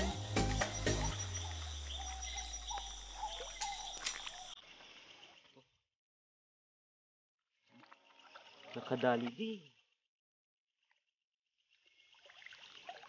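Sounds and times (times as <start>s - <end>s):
animal calls: 0.0s - 4.6s
running water: 0.0s - 5.7s, 11.7s - 13.0s.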